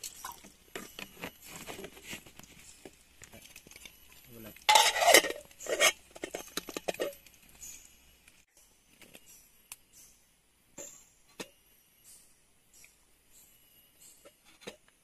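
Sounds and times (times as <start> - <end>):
cookware clinking: 4.6 - 7.1
metal cookware scraping: 4.6 - 7.3.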